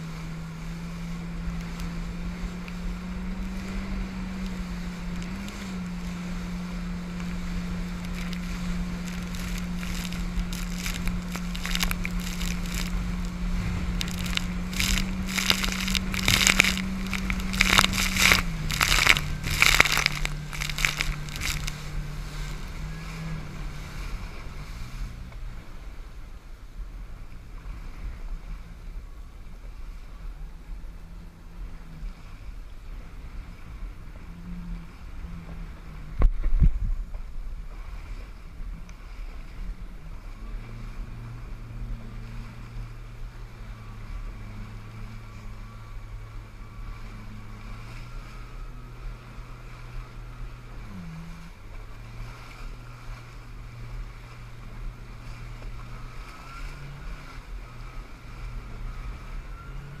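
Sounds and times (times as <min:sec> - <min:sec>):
water rushing: 0:00.0 - 0:29.0
jet ski engine running: 0:00.0 - 1:00.0.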